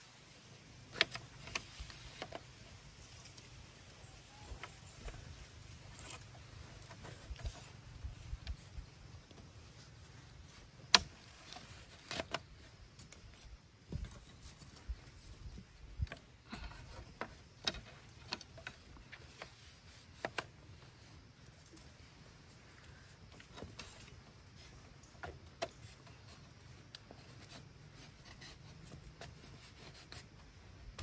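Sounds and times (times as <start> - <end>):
bamboo strips clicking and rustling: 0.7 - 31.0.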